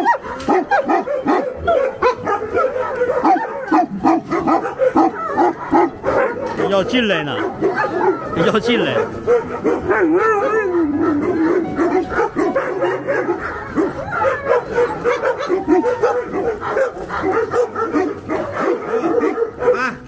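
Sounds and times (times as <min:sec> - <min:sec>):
dogs whining yelping and barking: 0:00.0 - 0:20.0.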